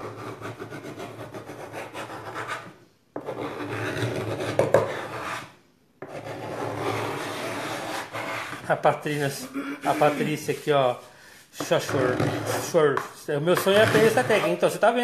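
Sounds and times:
hand sanding wood: 6.1 - 14.9.

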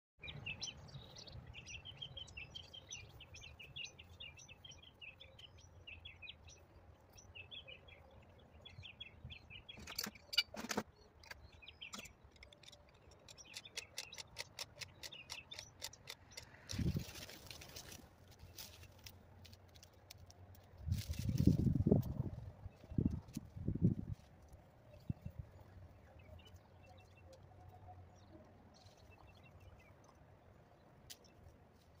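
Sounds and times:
small birds chirping: 0.2 - 19.1, 24.9 - 32.0
hand tool clicking: 12.0 - 16.9.

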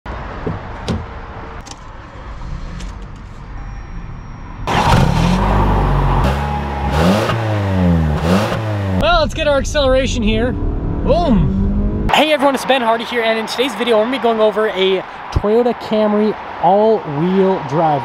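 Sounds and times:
car engine revving: 4.6 - 9.1, 9.7 - 12.4.

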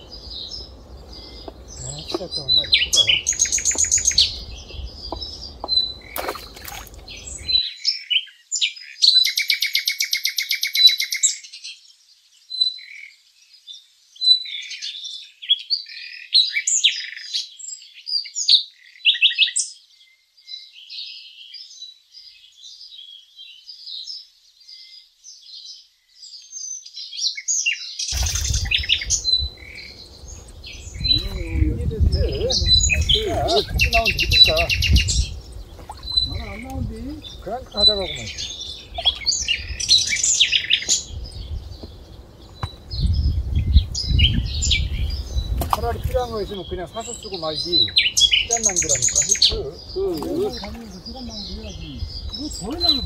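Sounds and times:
small birds chirping: 0.0 - 53.0.

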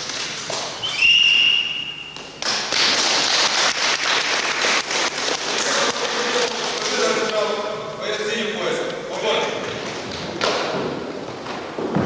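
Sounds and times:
whistle blast: 0.8 - 2.2.

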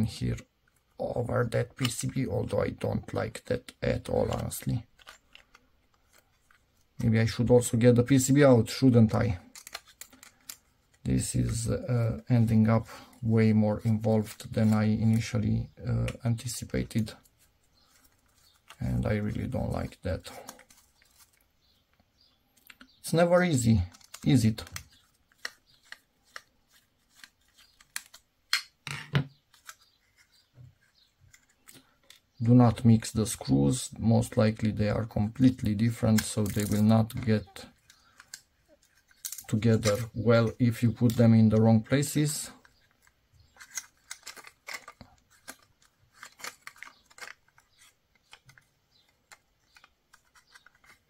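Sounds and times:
plastic clicks and scrapes: 4.0 - 6.9, 8.8 - 11.7, 23.9 - 32.4, 35.3 - 40.2, 42.6 - 51.0.

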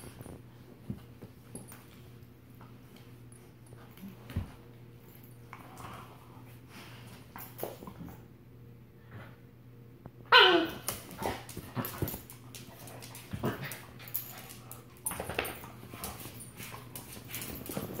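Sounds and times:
puppy barking and whining: 10.3 - 11.0.

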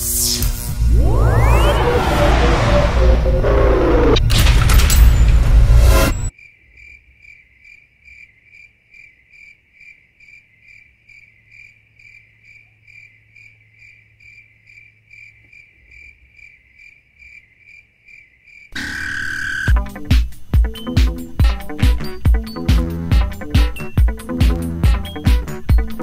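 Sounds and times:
cricket chirping: 6.3 - 19.7.

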